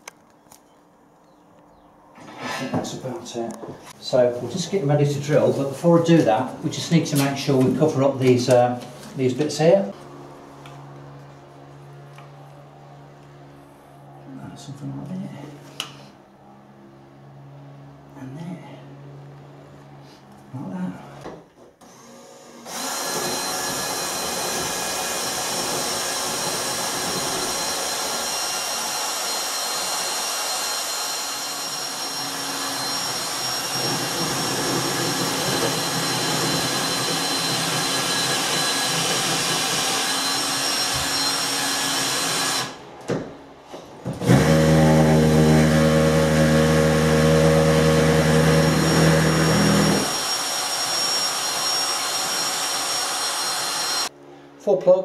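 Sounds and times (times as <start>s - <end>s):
vacuum cleaner running: 19.0s - 54.2s
electric drill boring into wall: 21.8s - 42.8s, 44.0s - 54.1s.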